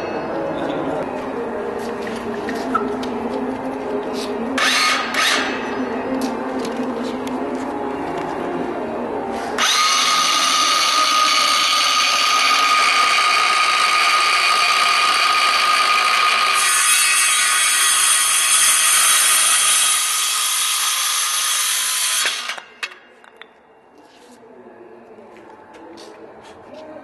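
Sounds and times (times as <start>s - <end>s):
circular saw cutting wood: 4.6s - 5.6s, 9.6s - 22.7s.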